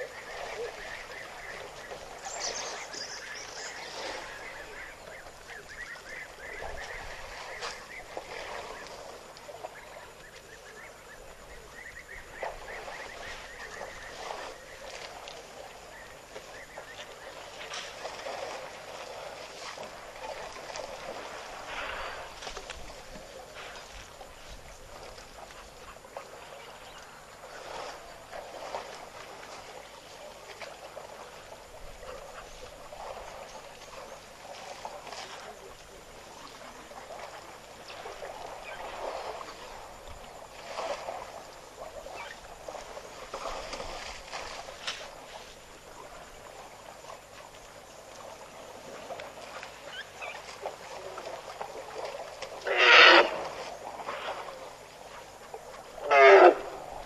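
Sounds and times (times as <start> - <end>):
elephant trumpeting blast: 52.7 - 53.3, 56.0 - 56.6.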